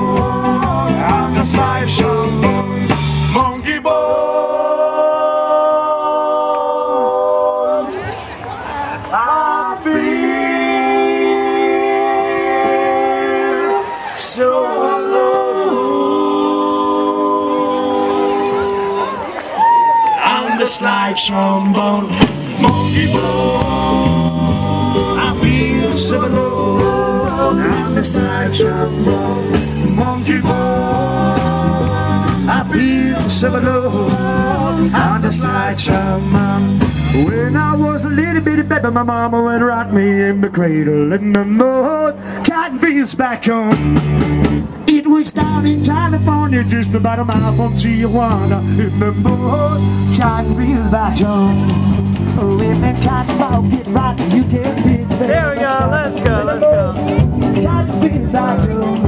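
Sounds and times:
rock band playing: 0:00.0 - 0:03.5, 0:22.1 - 0:38.5, 0:43.7 - 0:59.0
electric guitar chords: 0:00.0 - 0:03.6, 0:21.7 - 0:40.2, 0:45.4 - 0:59.0.

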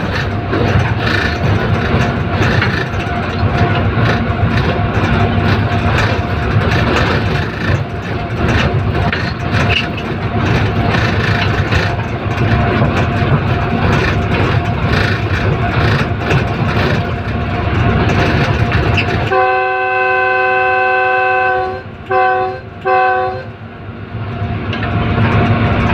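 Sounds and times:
locomotive rumbling on rails: 0:00.0 - 0:25.9
rail clicks: 0:00.0 - 0:25.9
train chord horn blasts: 0:19.2 - 0:23.6.

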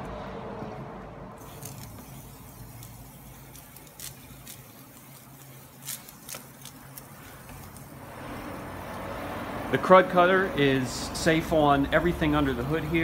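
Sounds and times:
spray bottle hissing squirts: 0:01.4 - 0:09.0.

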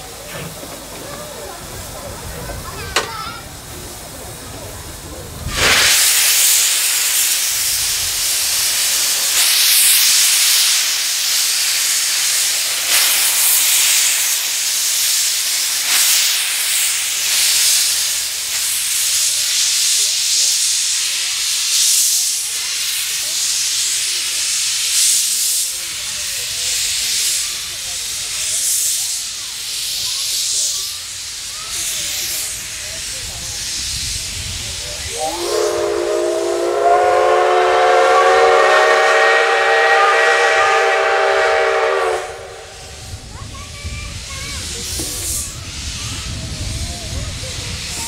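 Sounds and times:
steam locomotive venting steam: 0:00.0 - 0:48.0.

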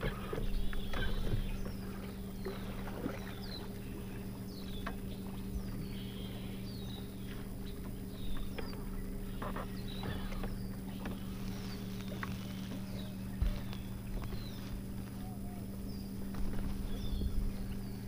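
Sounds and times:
electric boat motor humming: 0:00.0 - 0:18.0
bird chirping: 0:00.3 - 0:18.0.

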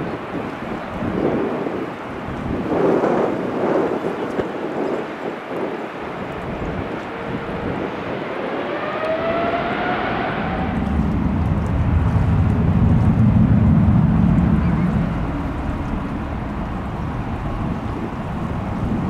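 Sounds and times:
jet engines whining: 0:05.8 - 0:19.0
reverse thrust rumble: 0:07.4 - 0:19.0.

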